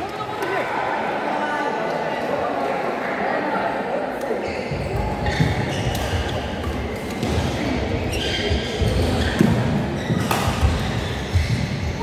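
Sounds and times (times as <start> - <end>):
racket hitting shuttlecock: 8.7 - 11.1.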